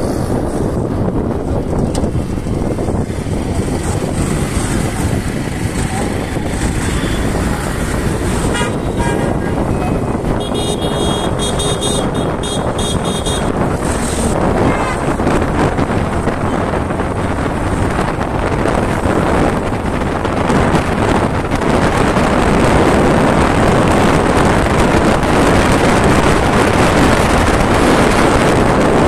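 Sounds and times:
motorcycle engine: 0.0s - 28.6s
wind buffeting microphone: 0.0s - 29.0s
horn beeping: 8.4s - 13.6s, 14.6s - 15.2s.

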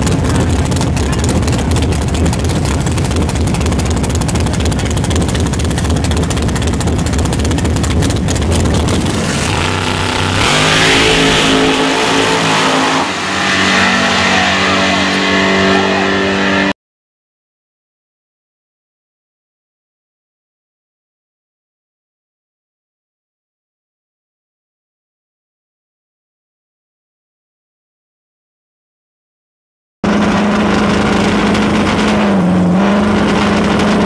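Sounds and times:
loud race car engine: 0.0s - 16.8s, 30.0s - 34.0s.

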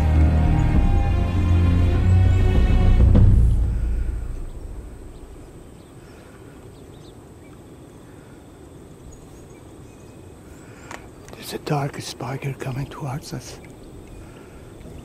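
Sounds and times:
low-pitched music: 0.0s - 5.7s
faint bird chirps: 3.8s - 11.6s.

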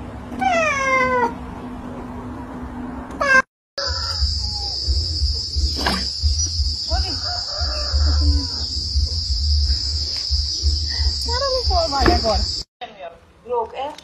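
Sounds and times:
insects droning: 3.8s - 12.7s.

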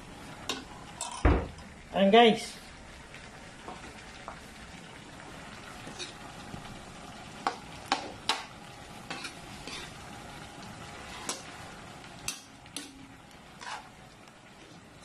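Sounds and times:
frying sizzle: 0.0s - 15.0s
spatula scraping a wok: 9.0s - 10.0s, 11.0s - 11.6s, 13.6s - 14.0s.

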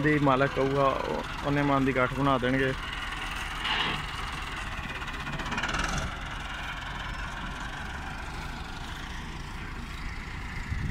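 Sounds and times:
tractor diesel engine idling: 0.0s - 10.9s.

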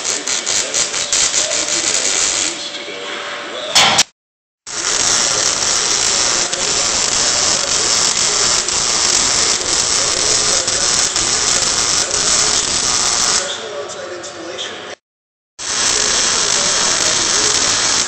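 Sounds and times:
welding arc crackling hiss: 0.0s - 2.7s, 4.7s - 13.7s, 15.6s - 18.0s.

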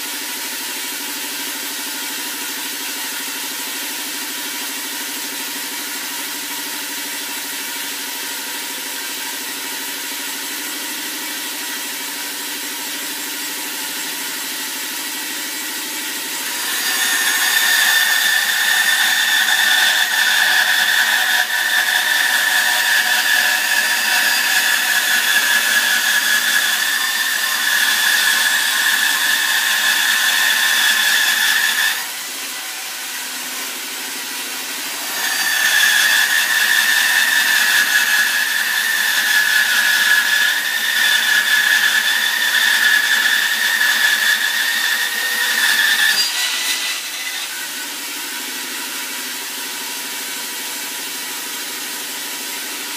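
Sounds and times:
bandsaw cutting wood: 12.8s - 49.8s.

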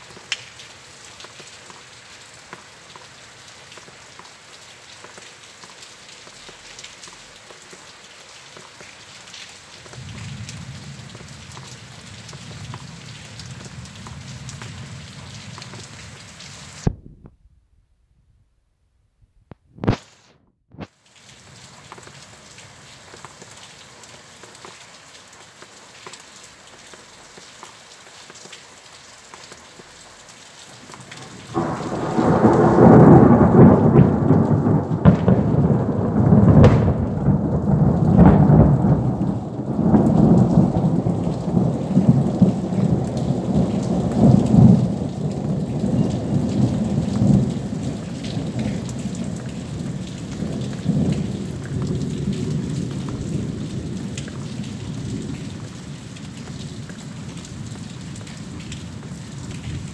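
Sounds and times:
steady rain: 0.0s - 17.2s, 19.5s - 59.9s
thunder rumbling: 31.0s - 55.6s.

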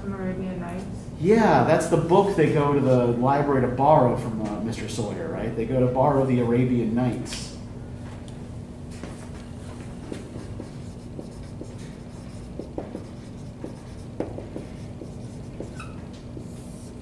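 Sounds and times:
low room hum: 0.0s - 17.0s
marker squeaking on whiteboard: 10.2s - 17.0s.

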